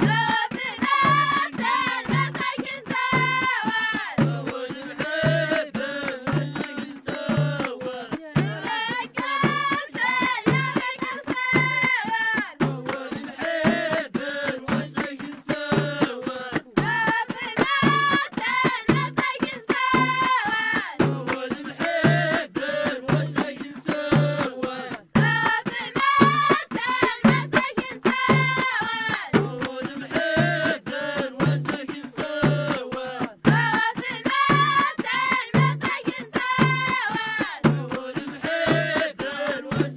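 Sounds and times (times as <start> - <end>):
children singing: 0.0 - 4.1
low hand-drum beat: 0.0 - 39.9.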